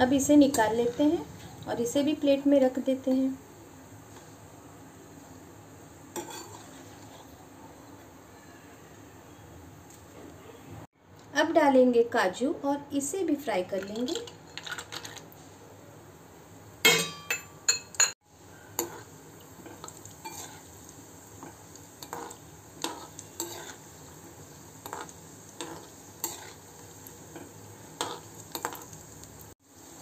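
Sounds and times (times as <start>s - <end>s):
nuts sizzling in oil: 0.0s - 9.1s, 18.0s - 30.0s
metal spoon scraping pan: 6.2s - 7.2s, 20.2s - 20.7s, 22.0s - 23.8s, 24.8s - 26.6s.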